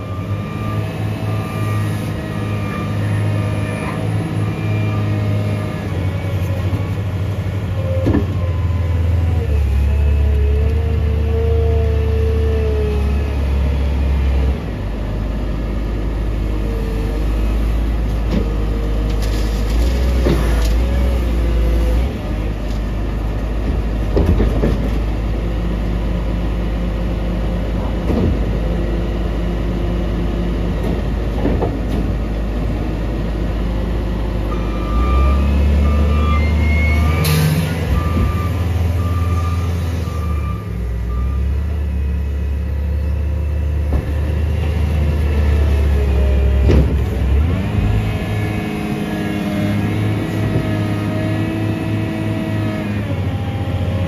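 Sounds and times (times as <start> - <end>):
reversing alarm beeping: 0.0 - 6.9, 34.5 - 41.7
diesel engines running: 0.0 - 54.0.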